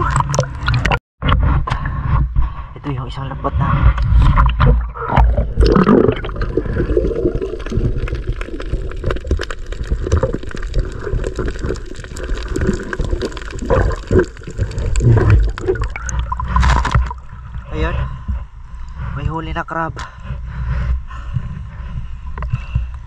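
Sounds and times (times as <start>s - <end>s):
underwater sloshing and gurgling: 0.0s - 2.8s, 3.5s - 19.4s, 20.1s - 23.0s
low rumble: 0.0s - 23.0s
water rush breaking surface: 5.6s - 17.9s.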